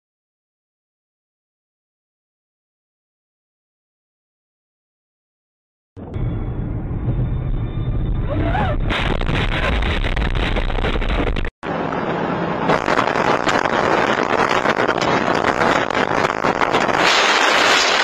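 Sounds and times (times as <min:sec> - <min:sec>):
road and wind noise: 0:06.0 - 0:18.0.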